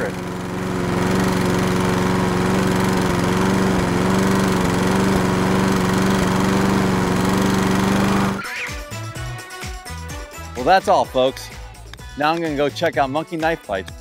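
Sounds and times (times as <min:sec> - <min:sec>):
ride-on mower engine running: 0:00.0 - 0:09.2.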